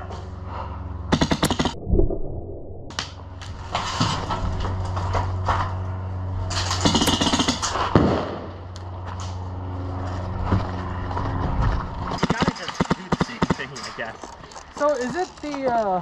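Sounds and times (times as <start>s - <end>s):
low hum: 0.0s - 6.9s.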